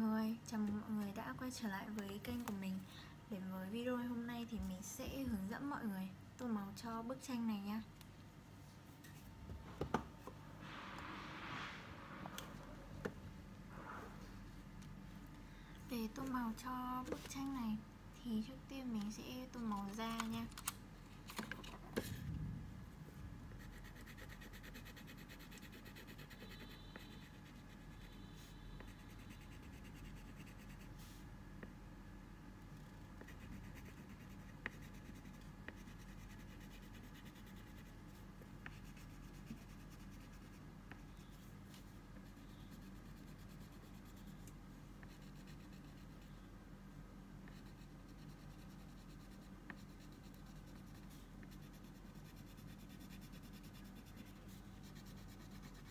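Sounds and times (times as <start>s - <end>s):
crayon scratching on paper: 23.6s - 30.9s, 33.2s - 37.9s, 38.6s - 41.4s, 45.0s - 46.4s, 47.5s - 55.9s.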